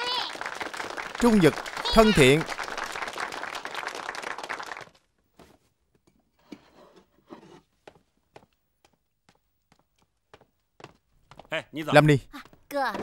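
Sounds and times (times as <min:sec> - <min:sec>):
crowd applauding: 0:00.0 - 0:05.1.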